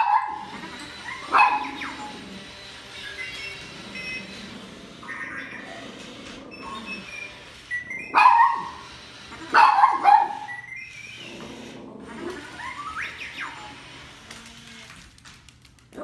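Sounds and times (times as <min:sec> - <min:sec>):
dog barking: 0:00.0 - 0:00.5, 0:01.3 - 0:01.8, 0:08.1 - 0:08.8, 0:09.5 - 0:10.5
toy robot electronic chirps: 0:01.1 - 0:09.0, 0:09.9 - 0:11.3, 0:12.4 - 0:14.0.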